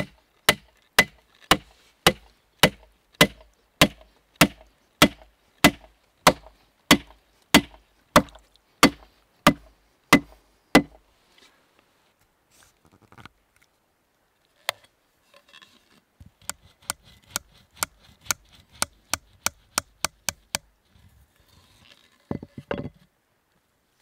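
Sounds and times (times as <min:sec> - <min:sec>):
axe knocking wooden peg: 0:00.0 - 0:11.0
rough wooden clatter: 0:21.4 - 0:23.1.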